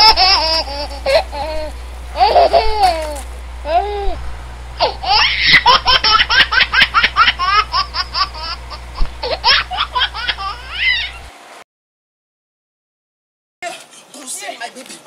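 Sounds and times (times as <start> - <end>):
high-pitched laughter: 0.0 - 4.1, 4.8 - 11.2.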